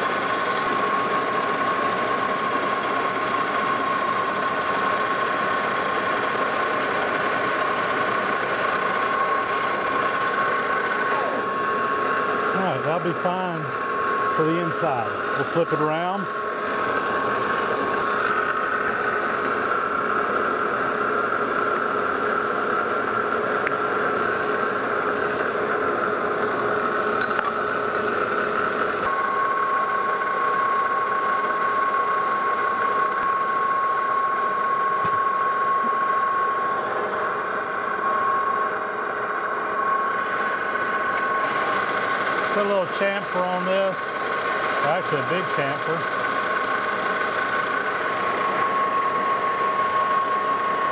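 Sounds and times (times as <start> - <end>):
metal lathe motor whine: 0.0 - 50.9
thin high falling tone: 29.1 - 41.4, 46.6 - 50.9.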